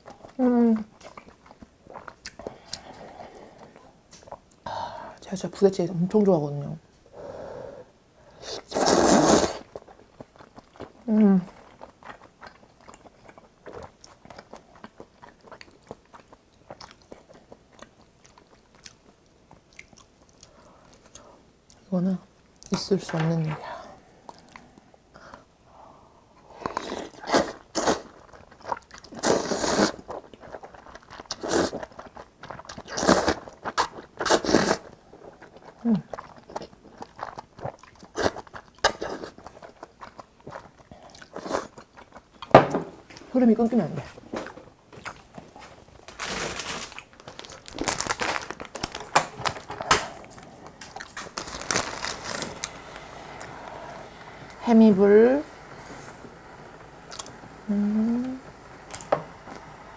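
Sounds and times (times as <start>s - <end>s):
chewing: 0.0s - 4.6s, 9.6s - 21.8s, 26.5s - 42.5s, 44.4s - 52.8s
noodles slurped: 8.4s - 9.9s, 26.7s - 41.8s
plastic packet crinkling: 46.0s - 52.8s.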